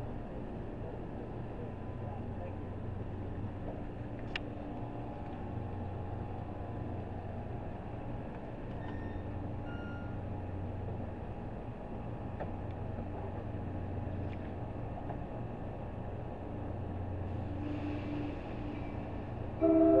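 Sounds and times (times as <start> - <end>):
train low hum: 0.0 - 20.0.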